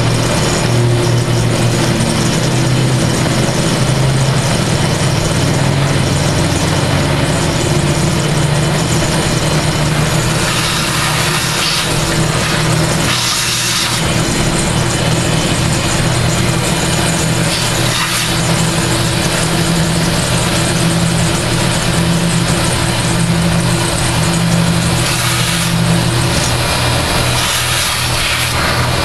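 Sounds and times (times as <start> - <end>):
milling machine motor hum: 0.0 - 29.0
hiss of metal cutting: 9.9 - 14.2, 17.0 - 19.6, 24.2 - 29.0.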